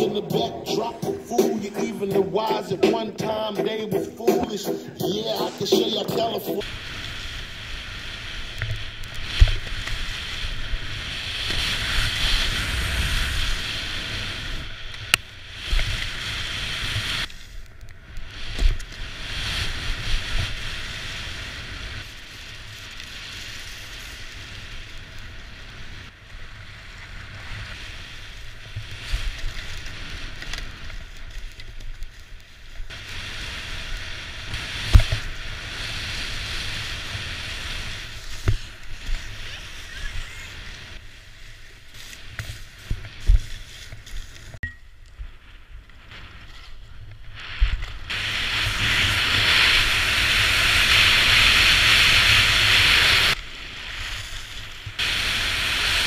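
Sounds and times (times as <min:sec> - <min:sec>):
skis scraping over hard snow: 0:00.0 - 0:44.6, 0:45.5 - 0:56.0
wind rushing over microphone: 0:45.6 - 0:56.0.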